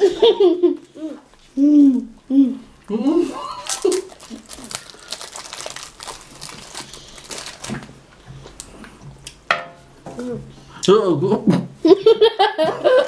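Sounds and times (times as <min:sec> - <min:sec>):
wrappers crinkling and tearing: 0:03.5 - 0:08.7.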